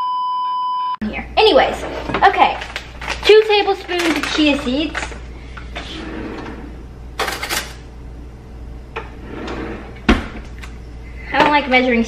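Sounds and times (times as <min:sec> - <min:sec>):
kitchen drawer opening: 0:05.8 - 0:07.8, 0:09.0 - 0:10.4
cutlery rattling: 0:07.2 - 0:07.8.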